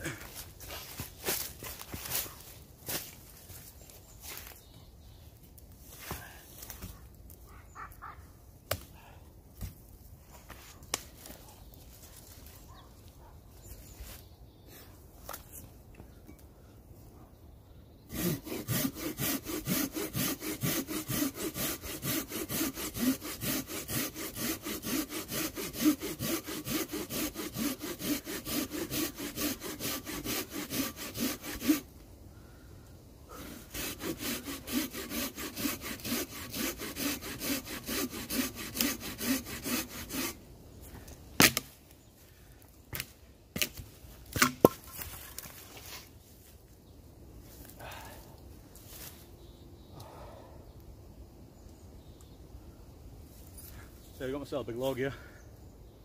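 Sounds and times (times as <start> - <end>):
hand saw cutting a log: 18.1 - 31.9, 33.3 - 40.4, 41.4 - 41.6.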